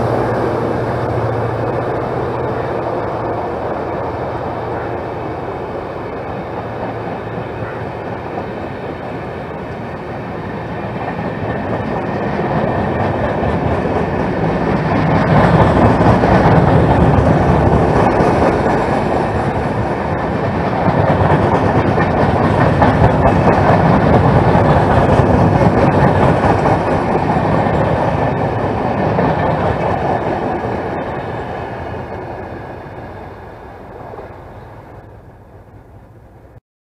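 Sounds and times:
train wheels rumbling on rail: 0.0s - 36.6s
sharp rail clacks: 10.9s - 31.4s.

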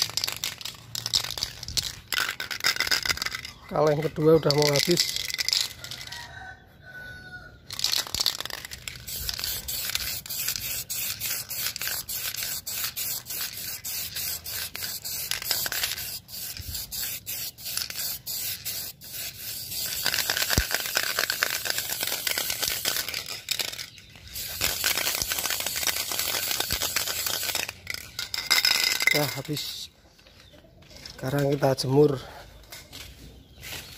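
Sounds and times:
spray can hissing: 0.0s - 3.6s, 7.7s - 29.1s.

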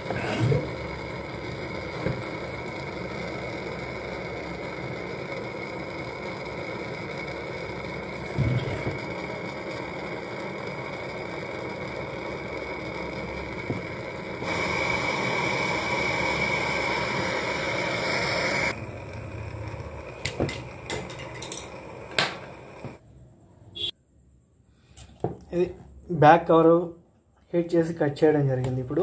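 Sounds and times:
torch hissing: 0.0s - 23.0s.

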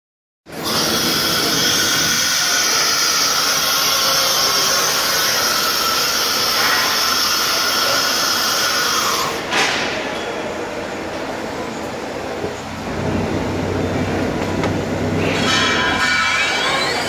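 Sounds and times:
milling spindle high whine: 0.5s - 9.5s.

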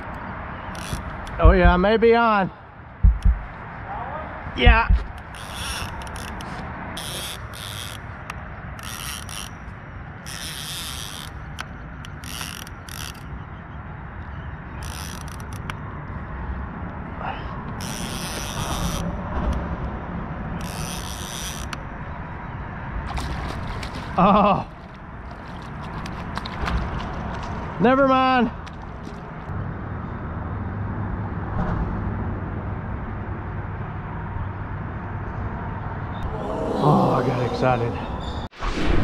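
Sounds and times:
steady low rumble: 1.2s - 2.1s, 2.9s - 3.9s, 4.5s - 5.3s
fishing reel whirring: 8.8s - 9.6s, 12.1s - 13.3s.

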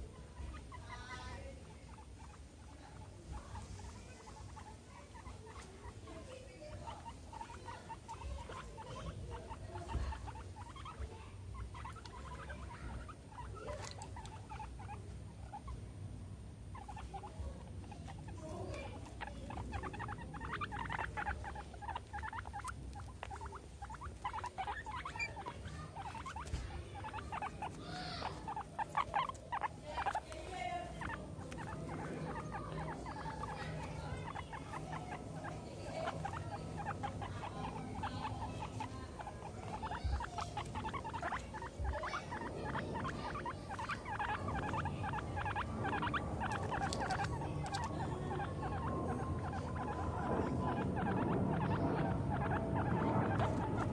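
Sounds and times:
guinea pigs clicking and rustling: 0.0s - 53.9s.

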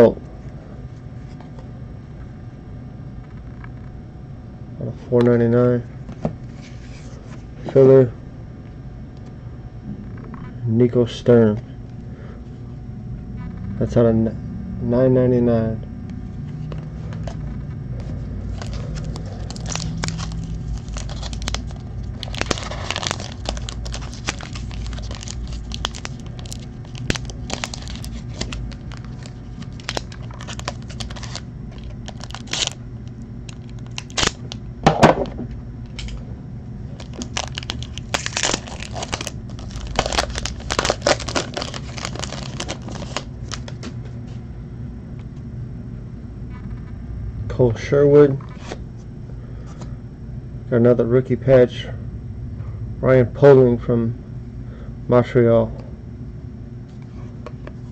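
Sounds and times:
cards rustling and clicking: 18.5s - 32.8s, 37.0s - 44.0s
foil wrapper crinkling and tearing: 18.5s - 32.8s, 33.5s - 34.6s, 37.0s - 43.9s.

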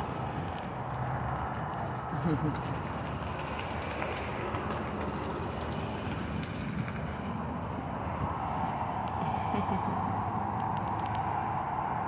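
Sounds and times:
steady rushing noise: 2.7s - 12.0s.

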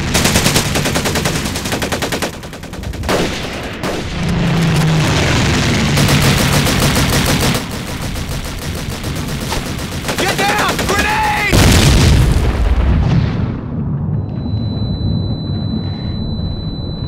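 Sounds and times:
machine-gun bursts: 5.9s - 11.6s.

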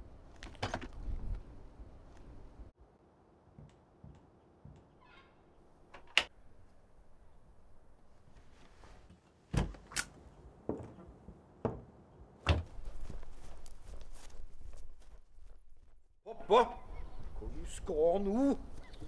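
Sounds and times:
outdoor background hiss: 0.0s - 14.3s
door latch clicking: 5.9s - 6.3s.

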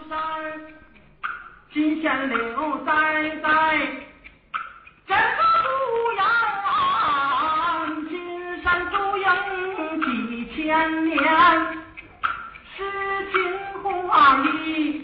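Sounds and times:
person singing ballad: 0.0s - 0.9s, 5.1s - 12.0s, 12.7s - 15.0s
bamboo clappers clacking: 0.0s - 15.0s.

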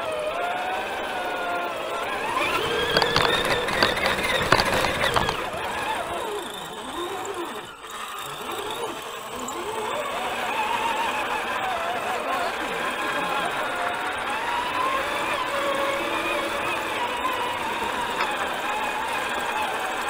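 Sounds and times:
model truck motor whine: 0.0s - 20.0s
clicks and knocks over ice: 2.6s - 5.6s.

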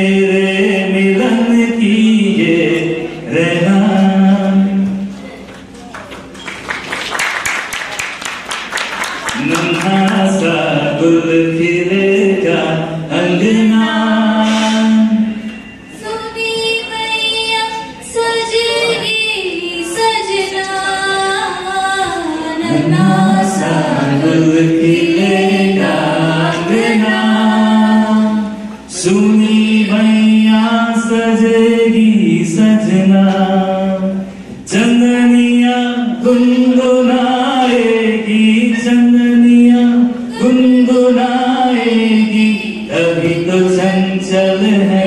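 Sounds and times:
group singing unaccompanied: 9.4s - 15.4s, 19.8s - 45.0s.

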